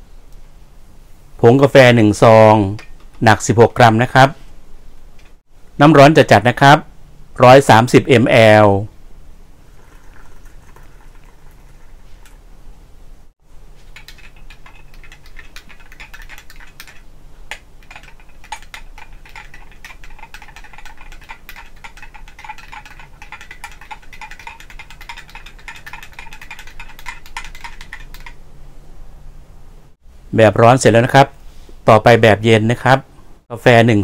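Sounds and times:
hot water pouring into glass: 9.6s - 12.4s
spoon clinking in glass: 14.0s - 17.0s, 17.8s - 28.2s.

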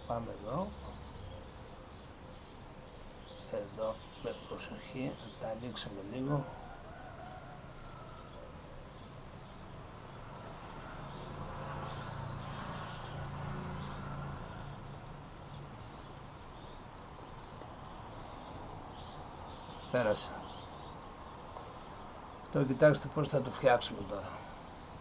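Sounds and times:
faint bird chirps: 0.0s - 25.0s.

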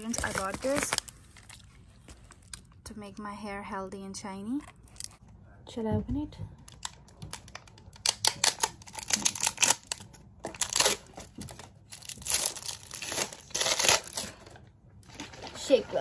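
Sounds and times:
plastic wrapping crinkling: 0.0s - 2.8s, 6.6s - 14.6s.

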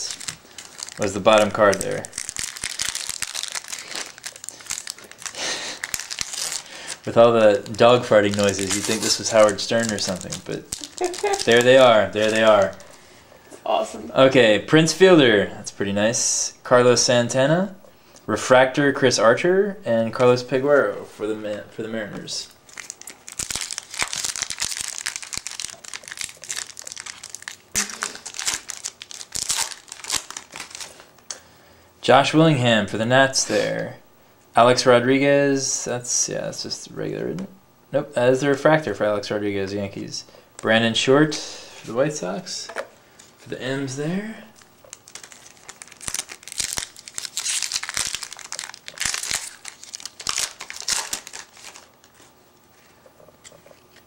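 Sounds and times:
foil wrapper tearing and crinkling: 0.0s - 12.9s, 22.7s - 31.2s, 44.6s - 52.3s.

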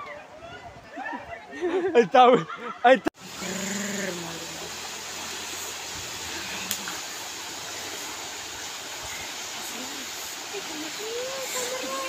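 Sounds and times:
flooded river rushing: 3.2s - 12.0s.

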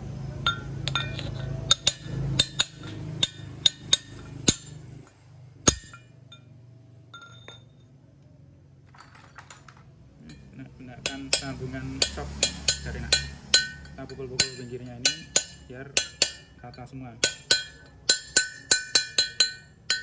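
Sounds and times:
hammer tapping on metal: 0.5s - 4.8s, 10.3s - 20.0s.

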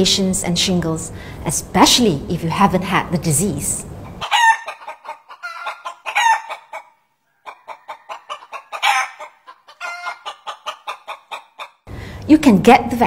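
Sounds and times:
chickens clucking: 4.1s - 11.9s.

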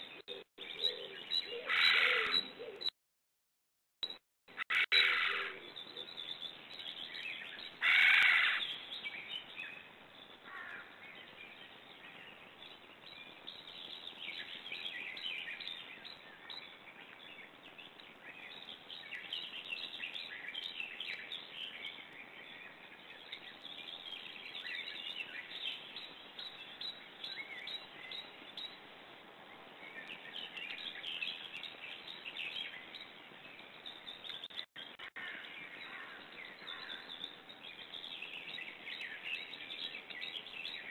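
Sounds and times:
loud bird call: 4.6s - 5.6s.

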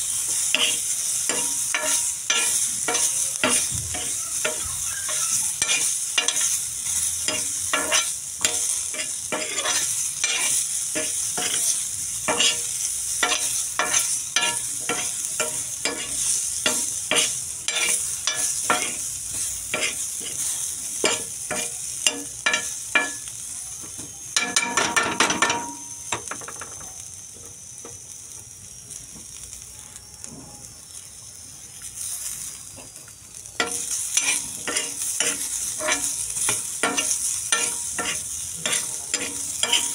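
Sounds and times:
metal spoon stirring and scraping: 0.0s - 23.2s, 33.6s - 39.9s
vegetables sizzling in oil: 0.0s - 39.9s.

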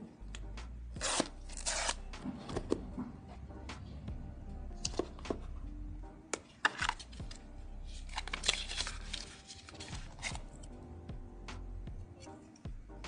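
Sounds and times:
paper rustling: 7.9s - 10.4s.

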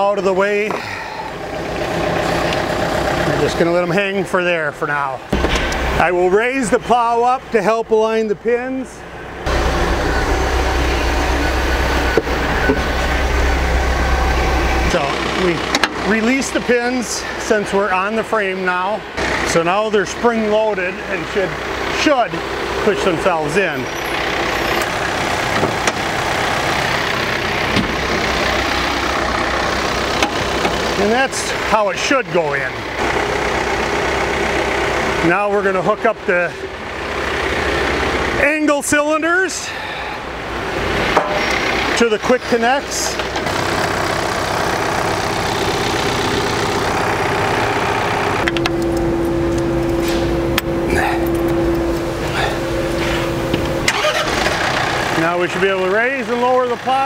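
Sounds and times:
tractor diesel engine idling: 0.0s - 57.0s
steady hum: 8.4s - 19.2s, 46.8s - 53.9s.

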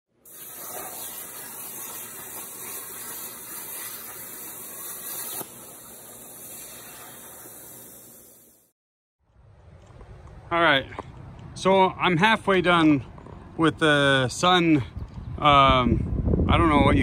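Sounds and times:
plasma cutter hissing: 0.2s - 8.7s.

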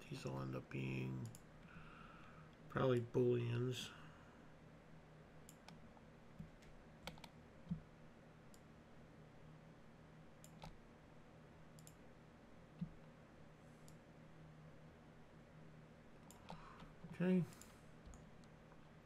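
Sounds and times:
low steady hum: 0.0s - 19.0s
computer mouse and keyboard clicks: 6.4s - 7.8s, 10.4s - 10.8s, 11.8s - 12.0s, 16.2s - 18.5s.

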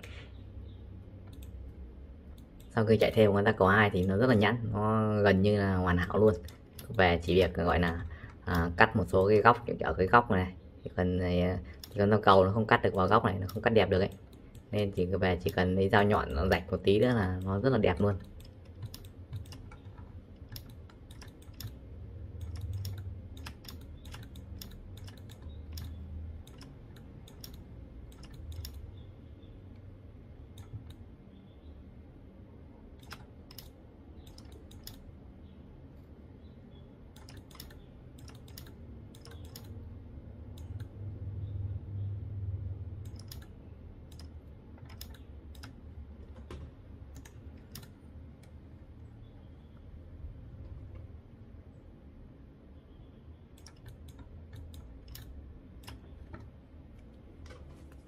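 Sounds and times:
keyboard and mouse clicking: 0.0s - 2.8s, 3.9s - 4.4s, 6.0s - 9.7s, 11.6s - 31.4s, 32.9s - 35.6s, 36.4s - 41.0s, 43.0s - 48.6s, 53.6s - 58.0s.

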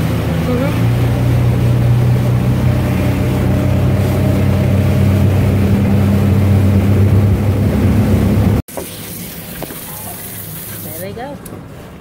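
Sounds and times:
motorboat engine running: 0.0s - 8.6s
rushing water hiss: 8.7s - 11.2s.

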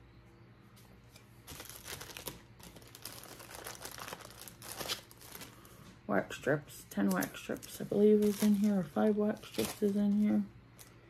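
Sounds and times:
packaging crinkling: 1.4s - 6.0s, 7.0s - 11.0s.

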